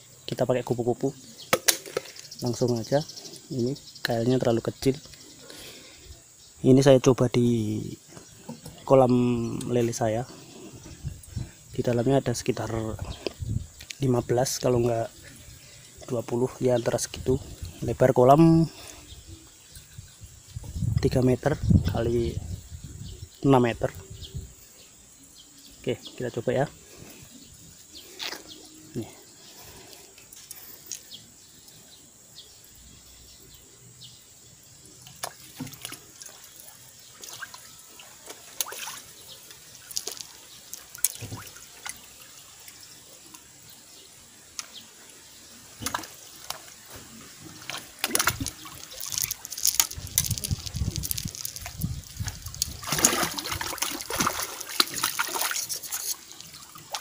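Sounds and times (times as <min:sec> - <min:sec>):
fish splashing in water: 0:35.0 - 0:42.8, 0:47.5 - 0:57.0
water thrashing and churning: 0:35.1 - 0:42.8, 0:45.8 - 0:57.0.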